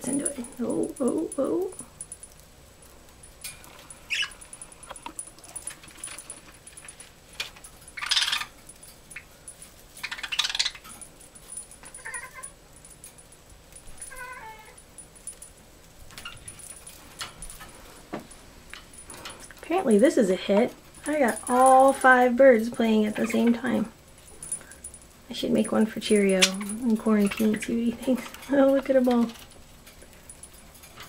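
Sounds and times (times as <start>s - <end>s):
light clicks and rattles: 0.0s - 31.0s
budgerigars chirping: 8.0s - 8.5s, 10.0s - 10.8s.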